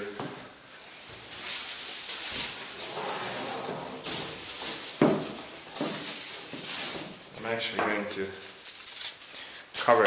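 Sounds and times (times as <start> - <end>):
cardboard scraping: 1.4 - 7.0
aluminium foil crinkling: 8.2 - 9.5.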